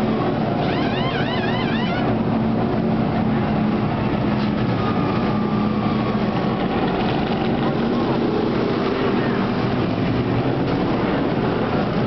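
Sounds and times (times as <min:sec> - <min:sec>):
stock car engines rumbling: 0:00.0 - 0:12.0
high warbling whistle: 0:00.6 - 0:02.1.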